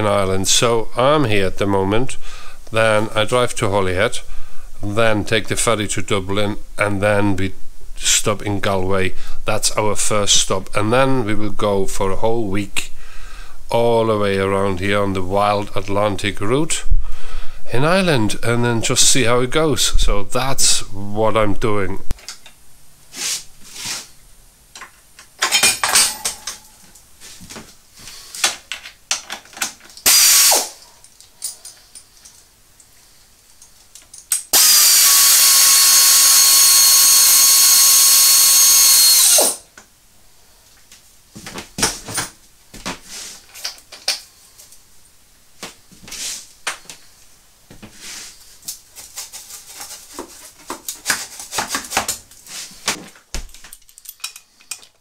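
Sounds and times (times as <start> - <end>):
metal tools clinking: 25.4 - 26.7, 30.8 - 32.4, 53.4 - 55.0
power drill running: 30.0 - 30.8, 34.5 - 39.6.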